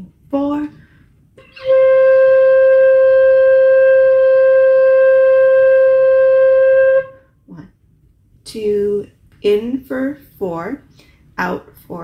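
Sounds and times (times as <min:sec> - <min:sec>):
flute holding long note: 0:01.4 - 0:07.3.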